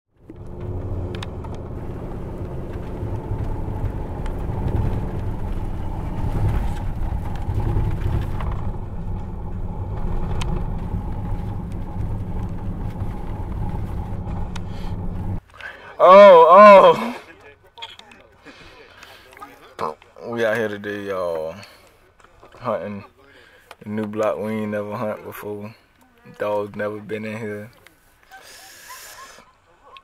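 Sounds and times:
truck engine drone: 0.1s - 15.4s
road noise: 0.1s - 29.8s.

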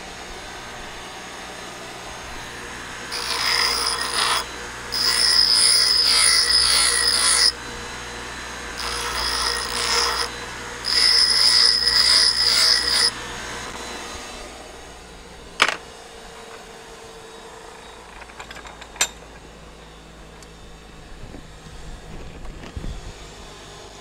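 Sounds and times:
bench grinder grinding metal: 0.0s - 15.0s
grinder running down: 0.1s - 19.2s.

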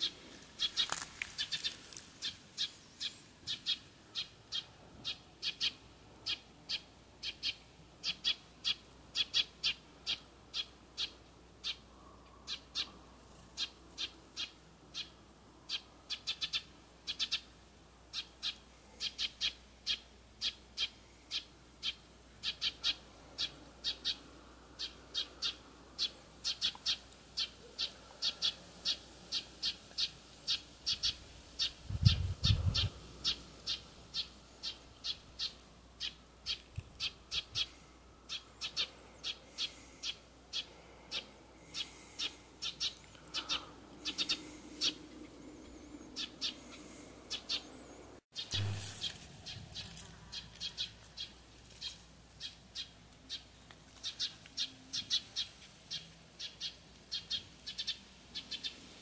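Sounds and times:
bird chirping: 24.8s - 58.8s.

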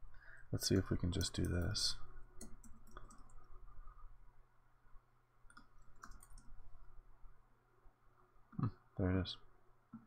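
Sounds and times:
low steady hum: 0.0s - 10.0s
computer keyboard keystrokes: 2.4s - 3.4s, 5.5s - 6.5s.

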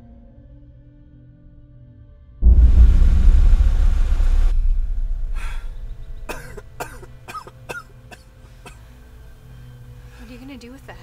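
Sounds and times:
loud low rumble: 2.4s - 7.3s
person coughing: 6.3s - 8.2s.

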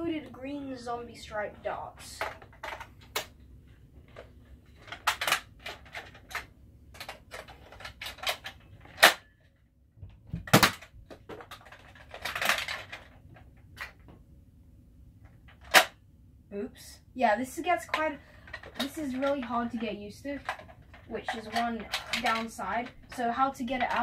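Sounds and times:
plastic clicks and clacks: 2.0s - 3.4s, 4.0s - 9.3s, 10.0s - 14.2s, 15.2s - 16.0s, 17.8s - 24.0s.

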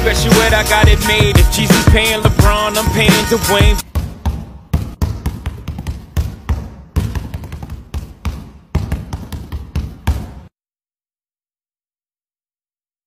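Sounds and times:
basketball bouncing on hardwood: 3.8s - 10.5s.

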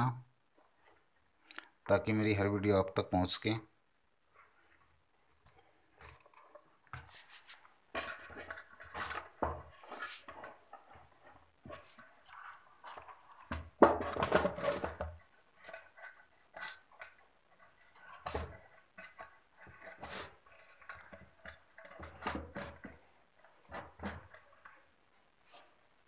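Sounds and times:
knocks and scrapes on wooden case: 6.0s - 24.8s.

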